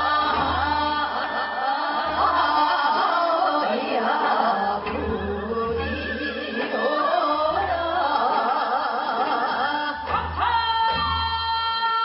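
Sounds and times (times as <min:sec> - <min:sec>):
women singing folk song with vibrato: 0:00.0 - 0:12.0
bamboo flute: 0:03.8 - 0:09.4.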